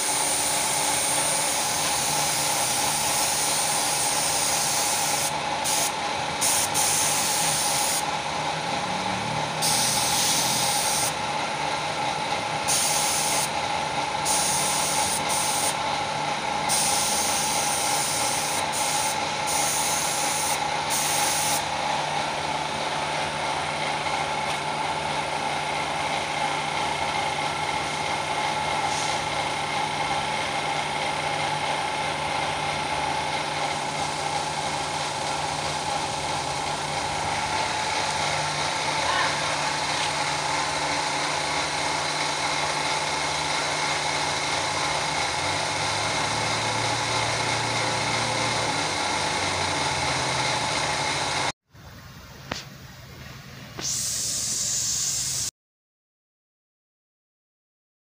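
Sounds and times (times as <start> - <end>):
spray gun hissing: 0.0 - 8.0, 9.6 - 11.1, 12.7 - 13.5, 14.2 - 15.8, 16.7 - 21.6, 53.8 - 55.5
steady machine hum: 0.0 - 55.5.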